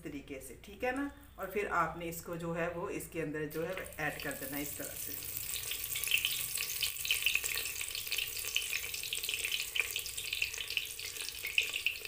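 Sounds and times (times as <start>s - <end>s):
eggplant sizzling in hot oil: 3.5s - 12.0s
oil crackles: 3.5s - 12.0s.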